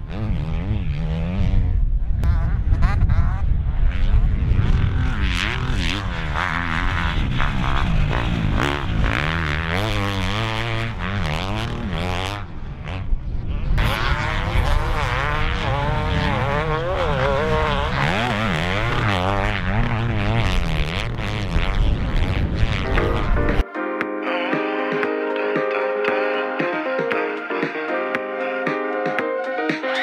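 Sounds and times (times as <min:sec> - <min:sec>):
motocross bike engine revving: 0:00.0 - 0:23.6.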